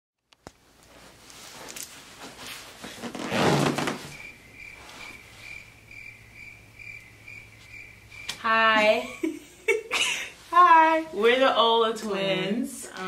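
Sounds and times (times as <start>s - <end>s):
clothes rustling: 0.6s - 5.7s
faint high chirp: 4.1s - 8.4s.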